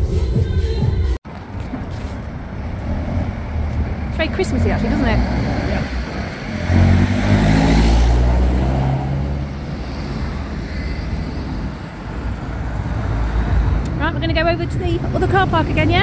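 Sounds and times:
road traffic rumble: 1.2s - 16.0s
car driving past: 2.6s - 13.9s.

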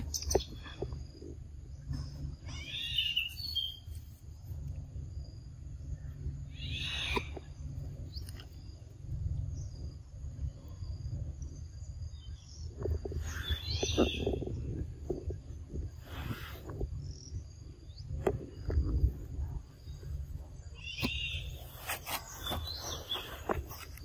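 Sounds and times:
high insect drone: 0.0s - 24.0s
high-pitched animal calls: 2.4s - 3.8s, 6.5s - 7.4s
low rumble: 3.4s - 21.8s.

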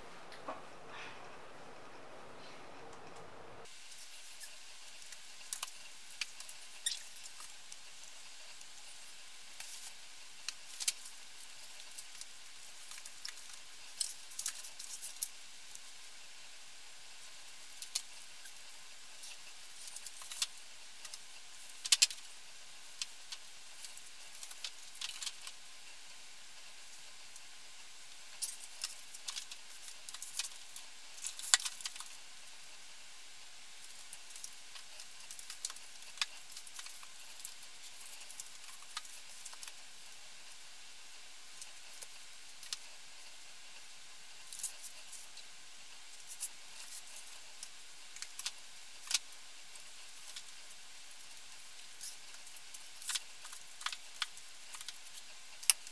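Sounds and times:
steady hiss: 0.0s - 55.9s.

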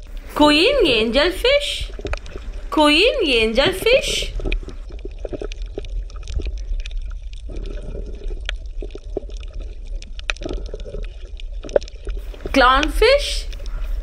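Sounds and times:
steady low hum: 0.0s - 4.9s
aquarium water gurgling and bubbling: 0.0s - 14.0s.

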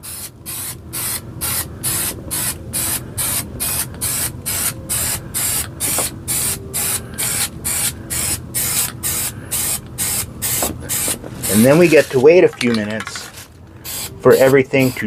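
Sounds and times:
aerosol can spraying in bursts: 0.0s - 12.2s, 13.8s - 15.0s.

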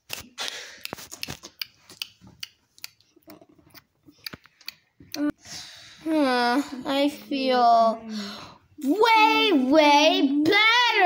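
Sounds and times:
child making chewing noises: 0.2s - 5.4s.

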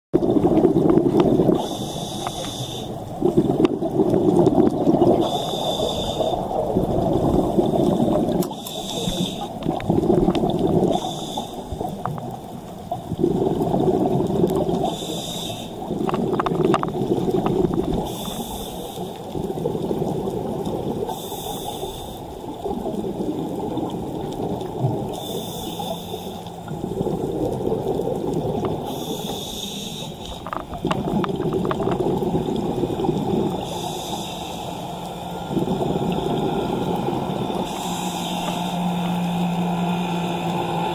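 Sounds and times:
exhaled air bubbling: 0.2s - 40.9s
regulator hiss: 1.6s - 3.0s, 5.2s - 6.6s, 7.5s - 9.6s, 10.9s - 11.9s, 14.8s - 15.9s, 21.1s - 22.4s, 25.1s - 26.7s, 28.8s - 30.4s, 33.5s - 40.9s.

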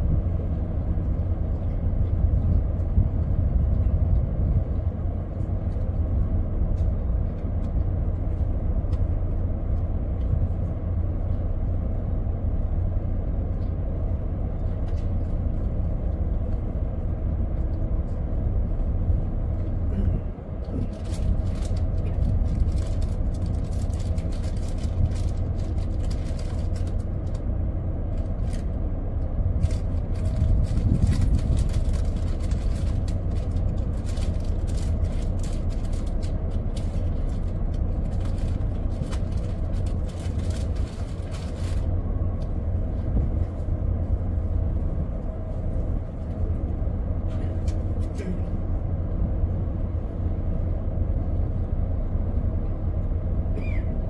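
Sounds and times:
ship engine rumbling: 0.0s - 54.0s.

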